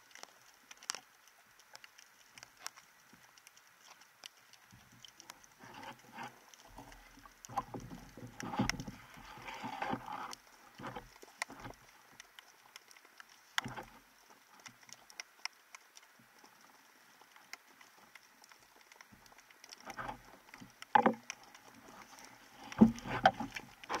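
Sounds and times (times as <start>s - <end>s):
faint clicks: 0.0s - 24.0s
underwater rustles: 0.0s - 24.0s
muffled underwater knocks: 20.9s - 21.2s, 22.6s - 24.0s.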